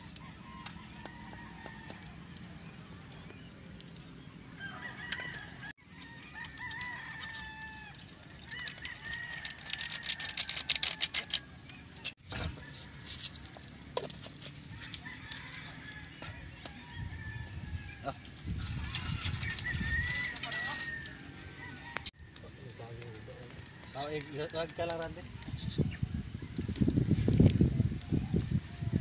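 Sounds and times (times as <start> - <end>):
rooster crowing: 0.0 - 2.4, 4.5 - 11.5, 14.7 - 22.4.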